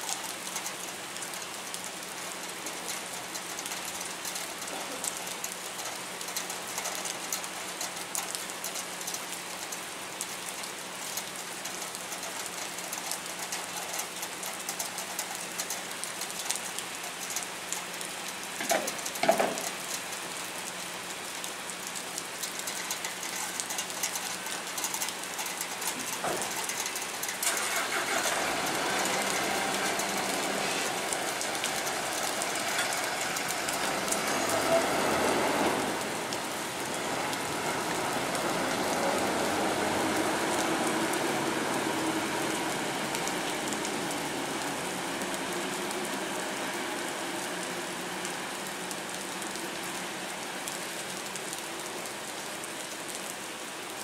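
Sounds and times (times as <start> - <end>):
rain on concrete: 0.0 - 54.0
truck moving off: 22.4 - 49.5.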